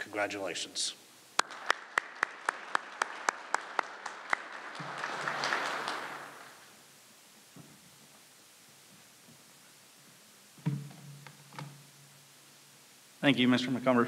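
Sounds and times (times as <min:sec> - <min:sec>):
close sharp claps: 0:01.4 - 0:06.8
audience clapping: 0:01.4 - 0:06.9.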